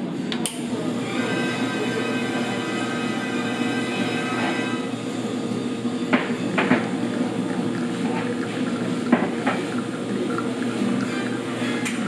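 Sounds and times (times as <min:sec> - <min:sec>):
espresso machine humming: 0:00.0 - 0:12.0
cups and dishes clinking: 0:06.0 - 0:12.0.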